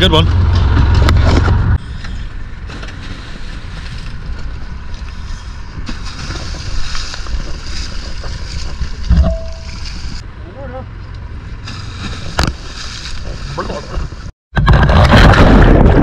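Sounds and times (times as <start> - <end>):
sea water sloshing and fizzing: 5.8 - 10.2.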